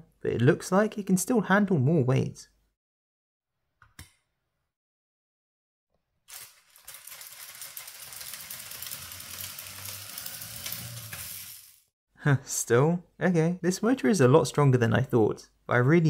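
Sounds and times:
toy electric motor humming and rattling: 6.3s - 11.9s.

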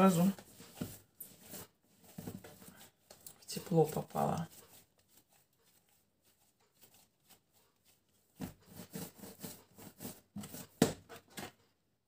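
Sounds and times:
dough rubbing on countertop: 0.0s - 11.4s.

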